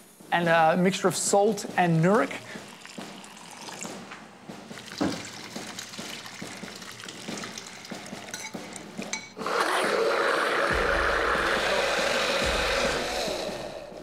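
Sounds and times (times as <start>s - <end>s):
spoon clinking against bowl: 7.2s - 9.4s
blender motor running: 9.4s - 13.7s.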